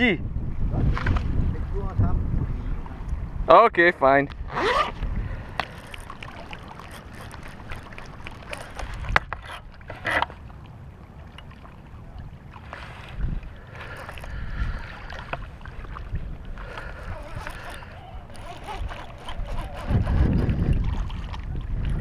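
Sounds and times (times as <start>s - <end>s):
wind rumbling on microphone: 0.0s - 22.0s
fishing rod and reel clicks: 4.3s - 10.5s, 13.7s - 15.5s, 16.6s - 21.4s.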